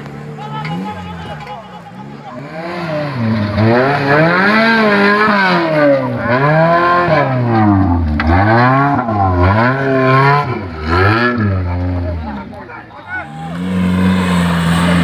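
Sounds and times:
engine revving hard: 2.4s - 12.3s, 13.2s - 15.0s.

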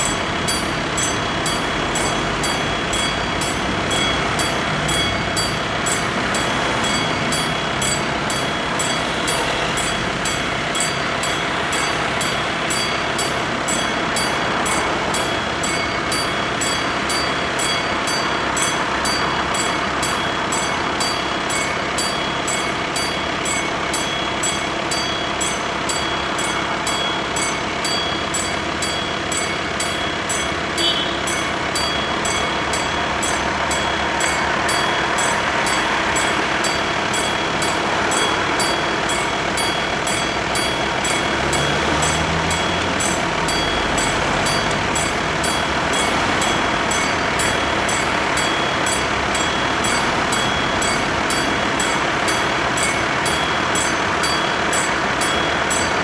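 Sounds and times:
level crossing warning bells ringing: 0.0s - 56.0s
passing road traffic: 0.0s - 56.0s
car engine passing: 32.3s - 56.0s.

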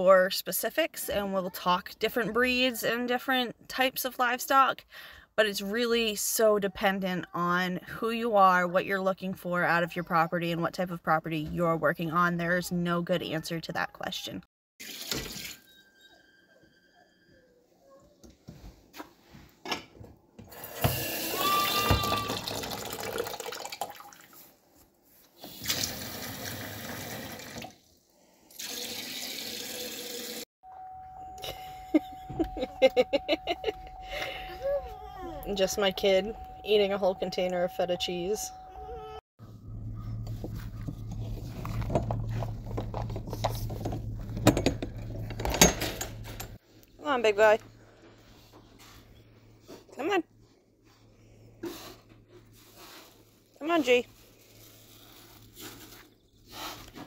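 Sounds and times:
water running into sink: 20.6s - 24.3s, 25.5s - 27.8s, 28.5s - 30.4s
metal door latch clanking: 44.4s - 46.6s.

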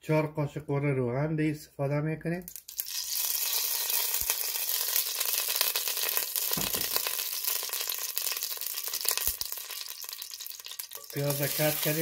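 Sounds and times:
oil sizzling in a pot: 2.5s - 12.0s.

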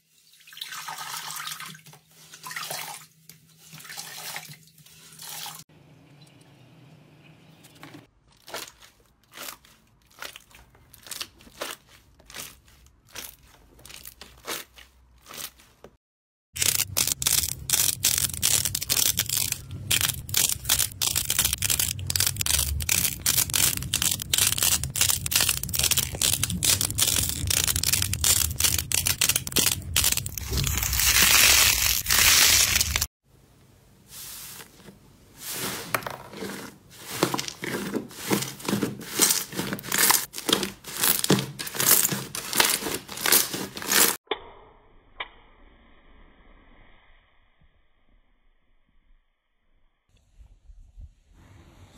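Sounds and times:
clay crunching and crackling: 8.1s - 16.0s, 16.6s - 33.1s, 36.2s - 44.2s.

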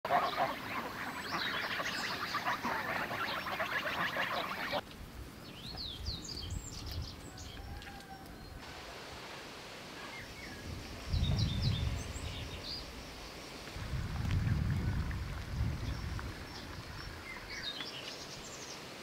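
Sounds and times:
geese calling: 0.0s - 4.8s
small songbirds chirping: 0.1s - 4.8s, 5.4s - 8.6s, 10.0s - 19.0s.

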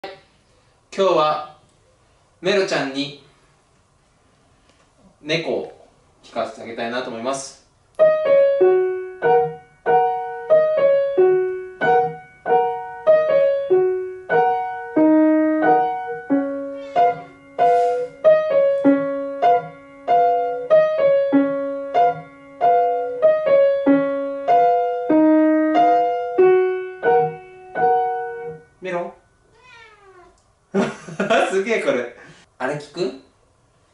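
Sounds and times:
grand piano played gently: 8.0s - 28.8s.

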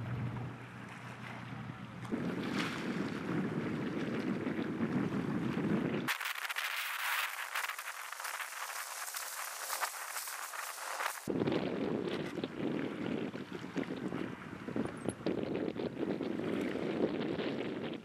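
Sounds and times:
wind buffeting microphone: 0.0s - 6.6s, 9.9s - 18.0s
waves at shore: 0.0s - 11.3s
crackly hiss: 6.1s - 11.3s.

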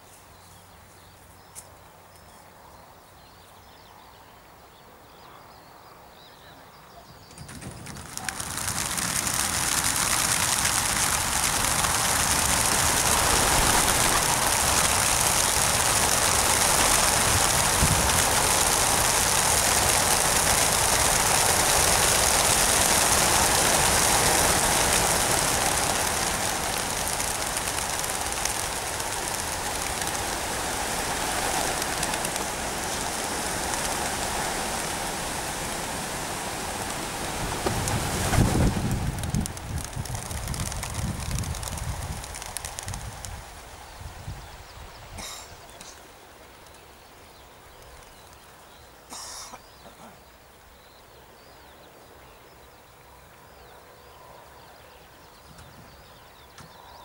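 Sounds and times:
pigeon wings rushing: 7.3s - 44.4s.

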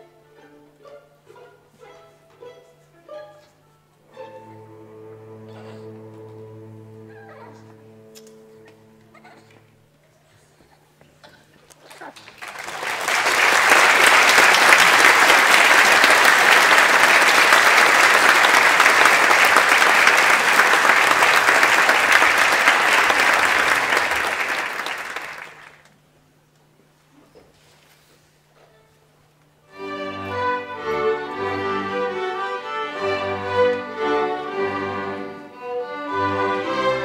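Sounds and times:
audience applauding: 11.9s - 25.9s.

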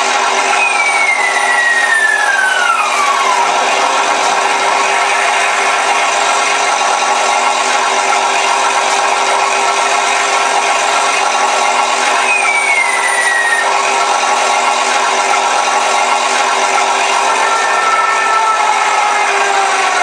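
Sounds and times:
propeller plane engine sound: 0.0s - 20.0s
thin falling whistle: 0.5s - 3.2s, 12.2s - 13.7s.

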